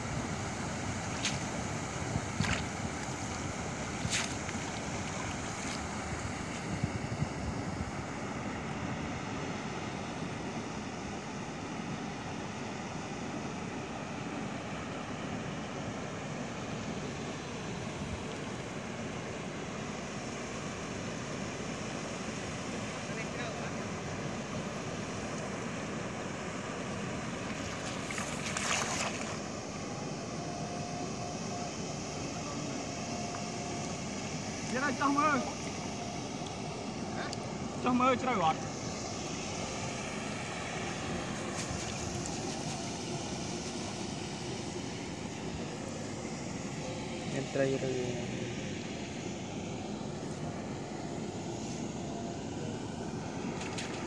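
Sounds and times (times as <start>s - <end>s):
wind rumbling on microphone: 0.0s - 8.1s
water noise: 0.0s - 54.0s
wind: 0.0s - 54.0s
cast net splashing into water: 27.6s - 29.4s.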